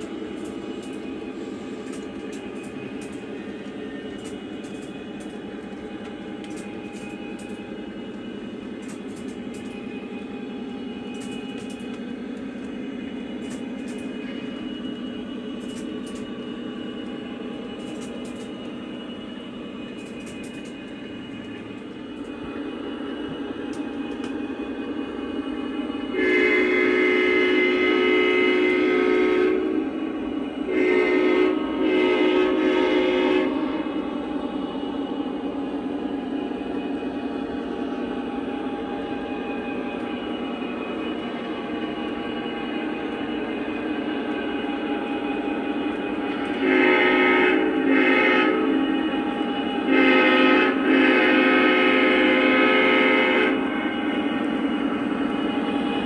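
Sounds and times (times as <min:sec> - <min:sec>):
model train rumbling: 0:00.0 - 0:56.0
model train horn blasts: 0:26.1 - 0:30.0, 0:30.6 - 0:33.8, 0:46.4 - 0:53.8.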